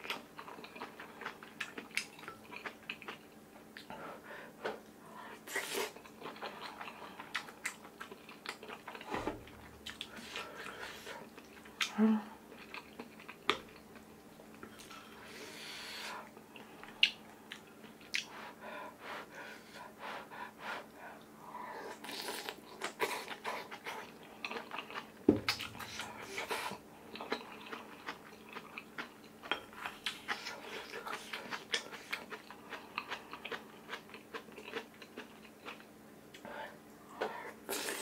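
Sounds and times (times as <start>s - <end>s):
loud thump: 9.1s - 9.6s.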